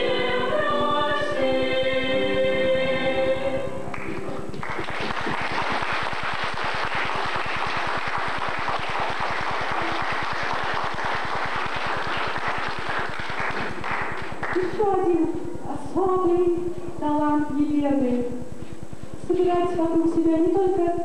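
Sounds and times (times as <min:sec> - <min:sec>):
audience applause: 0:03.9 - 0:14.7.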